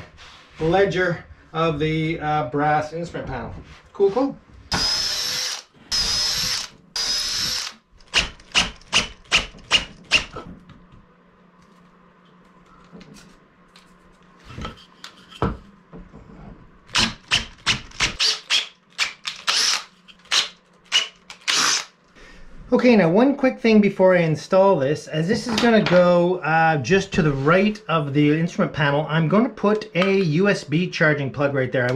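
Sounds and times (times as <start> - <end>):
cordless drill boring into wood: 4.7 - 10.3, 16.9 - 21.9.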